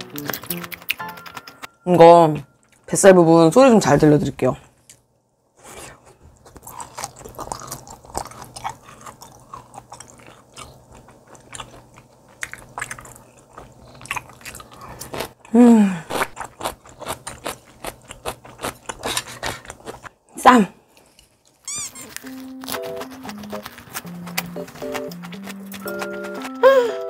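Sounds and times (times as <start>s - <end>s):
wet chewing and mouth clicks: 0.1s - 1.7s, 6.4s - 15.4s, 21.0s - 26.6s.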